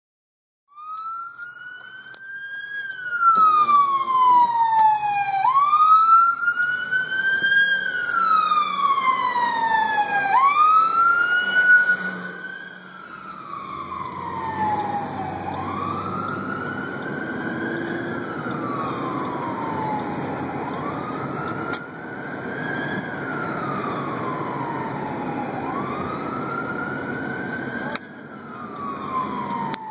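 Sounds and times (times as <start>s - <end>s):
ambulance siren wailing: 0.7s - 29.9s.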